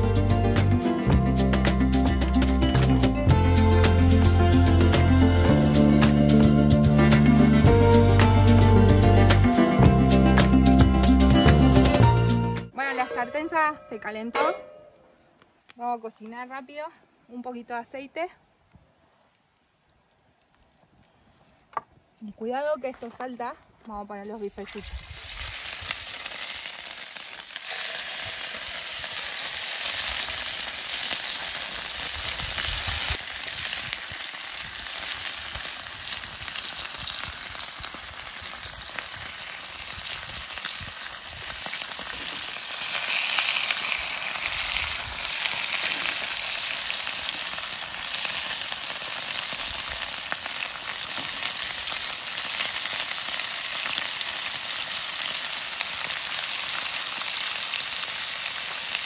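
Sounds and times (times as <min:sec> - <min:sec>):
meat sizzling in a frying pan: 0:24.4 - 0:59.0.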